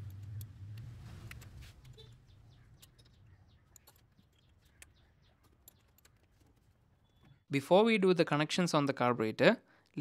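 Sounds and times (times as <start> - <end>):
faint bird chirps: 1.9 - 6.2, 6.9 - 7.5.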